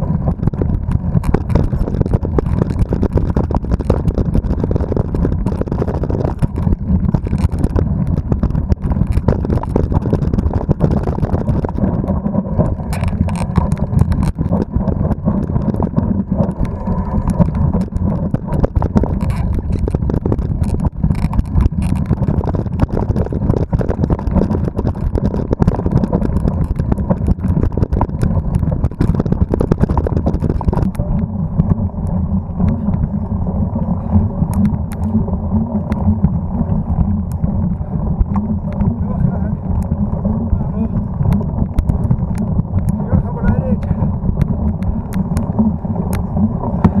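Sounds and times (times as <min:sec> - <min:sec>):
low rumble of wind and vibration: 0:00.0 - 0:47.0
bike rattling and knocking: 0:12.6 - 0:31.0.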